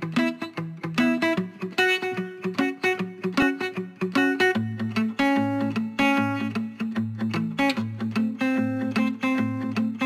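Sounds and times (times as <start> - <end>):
plucked instrumental music: 0.0 - 10.0.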